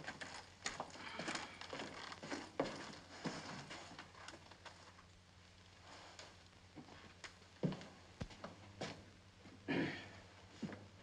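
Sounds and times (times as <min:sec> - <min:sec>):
footsteps on hard floor: 0:07.6 - 0:09.0.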